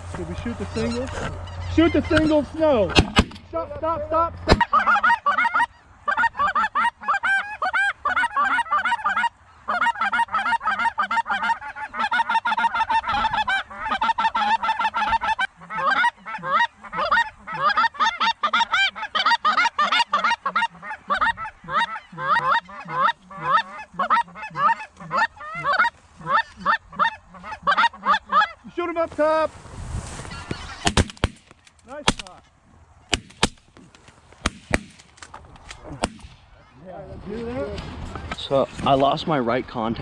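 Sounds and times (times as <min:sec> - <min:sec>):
geese honking: 0:00.0 - 0:29.5, 0:30.1 - 0:32.3.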